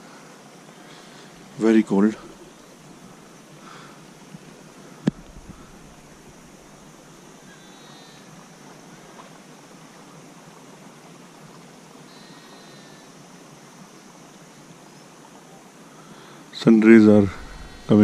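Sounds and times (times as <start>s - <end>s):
open-air ambience hiss: 0.0s - 18.0s
distant animal calls: 2.1s - 9.2s, 12.1s - 13.1s, 17.2s - 18.0s.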